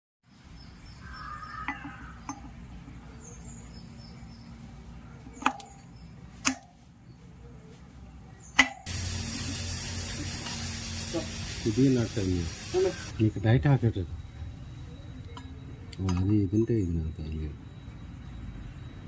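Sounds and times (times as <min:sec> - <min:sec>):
steady hiss: 0:08.8 - 0:13.9.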